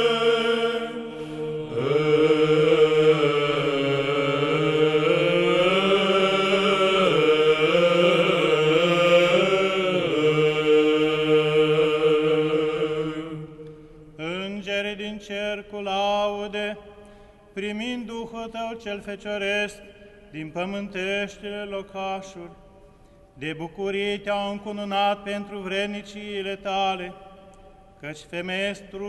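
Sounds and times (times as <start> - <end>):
male choir chanting a hymn: 0.0 - 16.8.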